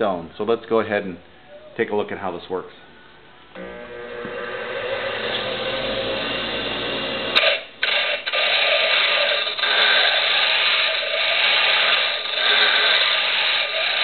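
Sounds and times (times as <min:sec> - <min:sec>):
bench grinder motor whine: 0:03.6 - 0:14.0.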